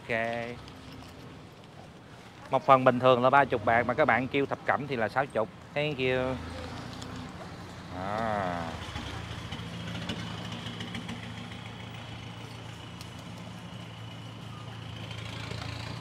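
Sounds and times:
vehicle engine idling: 0:07.8 - 0:16.0.

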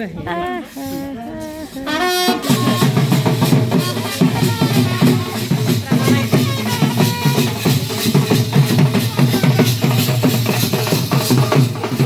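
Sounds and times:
trumpet playing: 0:00.8 - 0:07.9
quick steady drum beat: 0:01.7 - 0:12.0.

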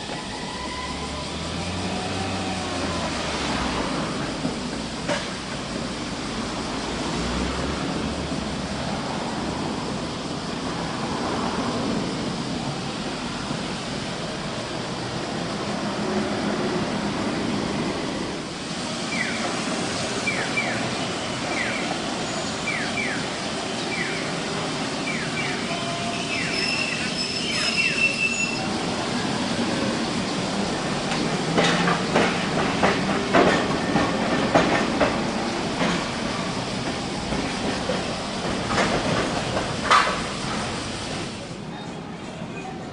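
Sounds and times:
tram rolling on rails: 0:00.0 - 0:42.9
wheels clacking over rail joints: 0:04.0 - 0:05.8, 0:29.1 - 0:41.3
high wheel squeal: 0:19.0 - 0:29.0.

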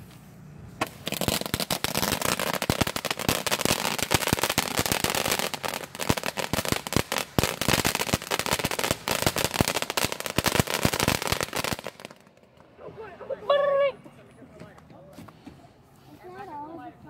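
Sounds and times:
firework fountain crackling: 0:00.8 - 0:13.8.

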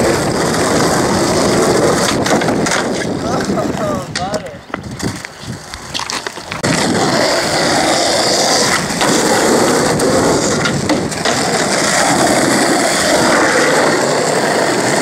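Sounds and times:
skateboard wheels rolling on asphalt: 0:00.0 - 0:15.0.

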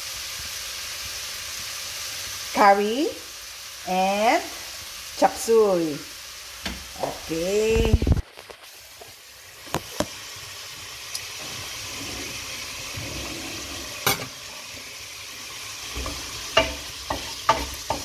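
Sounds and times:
food sizzling in frying pan: 0:00.0 - 0:18.0
wooden spatula stirring pan: 0:11.3 - 0:18.0.

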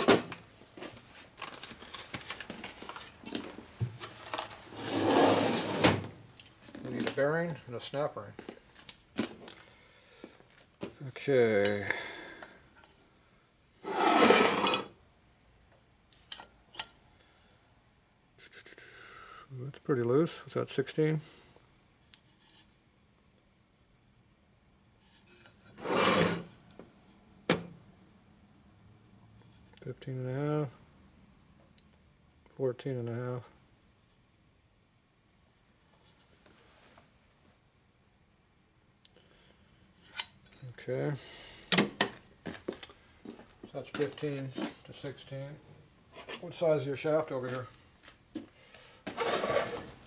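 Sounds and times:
rummaging in tool drawer: 0:00.0 - 0:07.2, 0:13.8 - 0:14.9, 0:49.1 - 0:50.0
metal part scraping on workbench: 0:04.8 - 0:06.0, 0:13.8 - 0:14.9, 0:25.8 - 0:26.5, 0:49.1 - 0:50.0.

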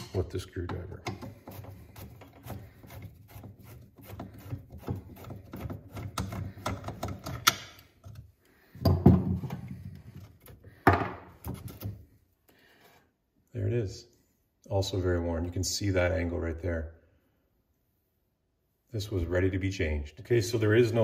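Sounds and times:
knocks and clatter of metal parts: 0:04.8 - 0:08.2, 0:08.8 - 0:12.0.

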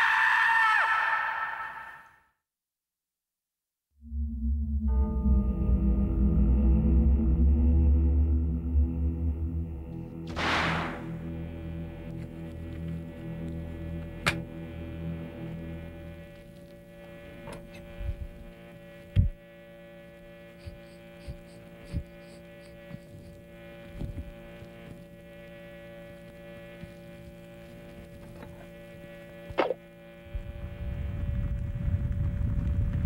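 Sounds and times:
low rumble: 0:04.0 - 0:17.3, 0:30.3 - 0:33.0
electrical hum: 0:04.0 - 0:33.0.

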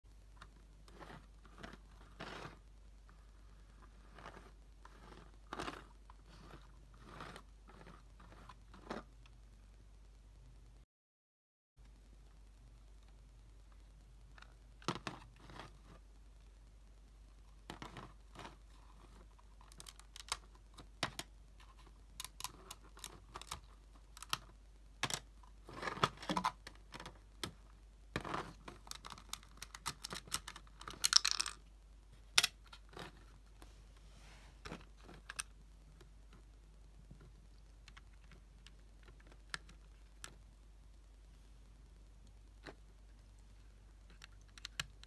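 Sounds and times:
plastic bricks clicking: 0:19.6 - 0:27.6, 0:28.2 - 0:31.7.

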